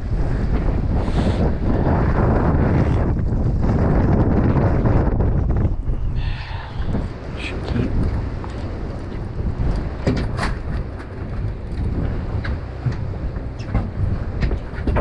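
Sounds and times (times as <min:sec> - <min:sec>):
wind rumble on microphone: 0:00.0 - 0:15.0
sharp knocks and clicks: 0:08.0 - 0:15.0.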